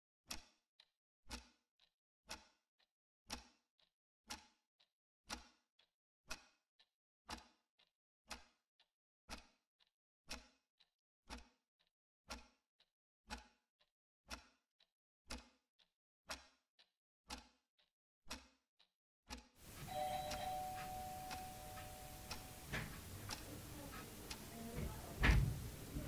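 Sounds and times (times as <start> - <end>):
clock ticking: 5.3 - 5.6, 7.3 - 7.5, 11.3 - 11.5, 13.3 - 13.6, 14.3 - 14.5, 15.3 - 15.6, 17.3 - 17.6, 19.3 - 26.0.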